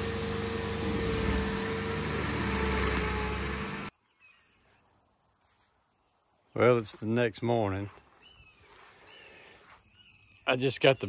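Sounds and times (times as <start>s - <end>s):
engine running: 0.0s - 3.9s
faint insect chirring: 3.9s - 11.0s.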